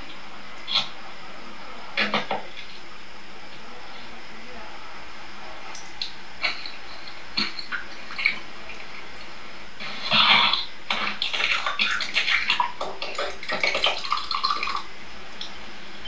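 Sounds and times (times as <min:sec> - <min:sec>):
eggs cracking: 0:10.4 - 0:15.5.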